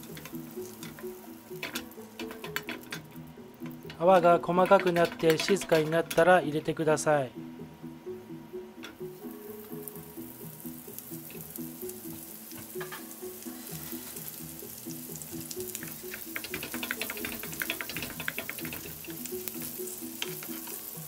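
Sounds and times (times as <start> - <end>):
meat sizzling in a frying pan: 0.0 - 5.8, 9.0 - 21.0
spoon basting in pan: 0.0 - 6.2, 10.8 - 21.0
soft background music: 0.0 - 21.0.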